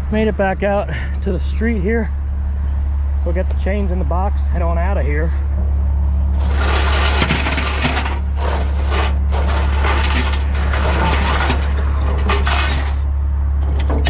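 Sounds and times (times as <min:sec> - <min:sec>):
low hum: 0:00.0 - 0:14.0
metal chains clanking: 0:06.4 - 0:14.0.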